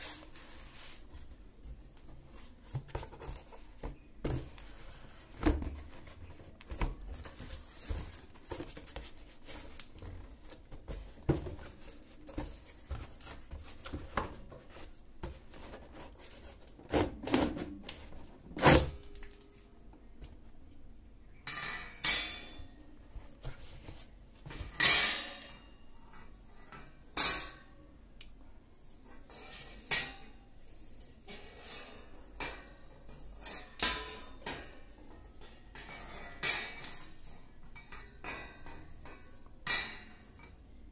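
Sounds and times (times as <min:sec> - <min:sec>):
scraping handling noises: 0:00.0 - 0:19.7.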